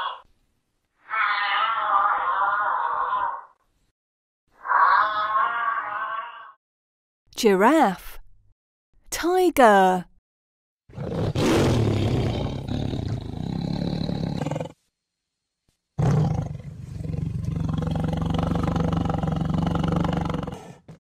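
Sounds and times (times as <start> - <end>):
tiger roaring: 10.9 - 14.8, 16.0 - 21.0.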